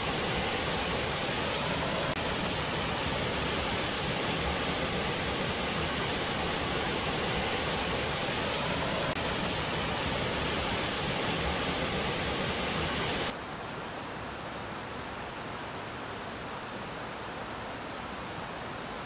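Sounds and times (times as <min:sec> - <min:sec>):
waterfall rushing: 0:00.0 - 0:13.3.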